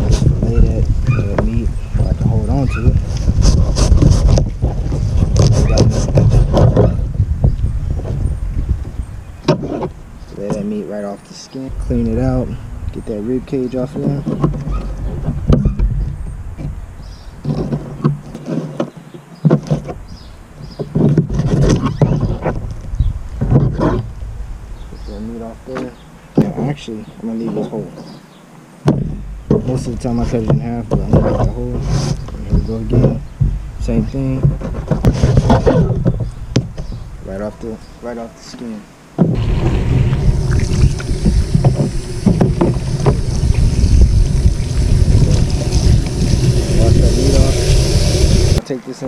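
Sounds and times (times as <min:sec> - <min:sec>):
wind rumbling on microphone: 0:00.0 - 0:10.9, 0:11.7 - 0:18.4, 0:19.6 - 0:28.2, 0:28.9 - 0:38.0, 0:38.9 - 0:48.6
tap water running into a sink: 0:40.2 - 0:48.6.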